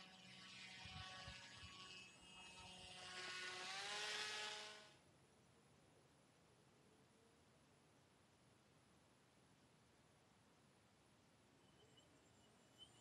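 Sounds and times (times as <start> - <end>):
small propeller motor whining: 0.0 - 5.0.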